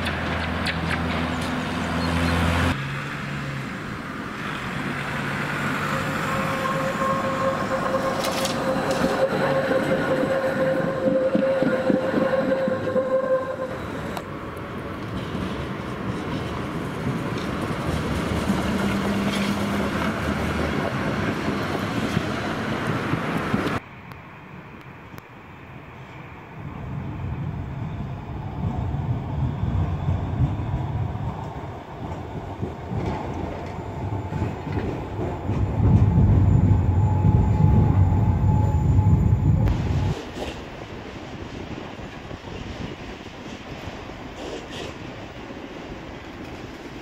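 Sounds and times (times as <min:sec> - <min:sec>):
street noise: 0:00.0 - 0:47.0
tram wheels rumbling on rails: 0:00.0 - 0:47.0
steady whine: 0:05.7 - 0:14.3, 0:33.6 - 0:40.4.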